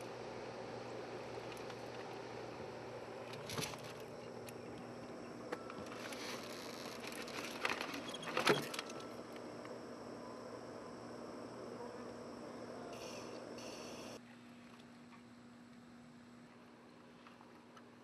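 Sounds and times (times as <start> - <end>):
electric motors whirring: 0.0 - 14.2.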